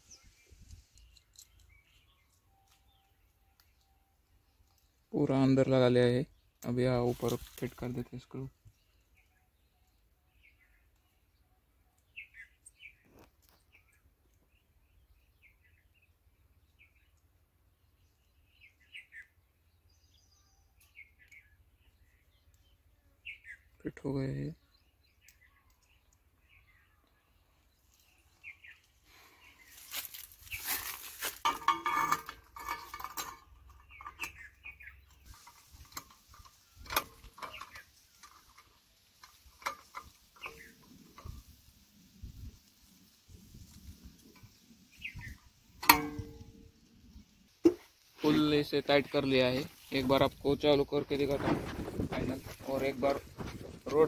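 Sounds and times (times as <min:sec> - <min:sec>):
bird chirps: 0:00.0 - 0:05.2, 0:08.4 - 0:31.2, 0:32.6 - 0:43.0, 0:43.6 - 0:47.4.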